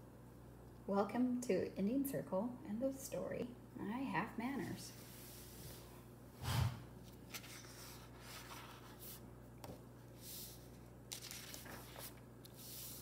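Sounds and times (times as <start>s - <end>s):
paper rustling and sliding: 7.0s - 9.2s, 10.1s - 13.0s.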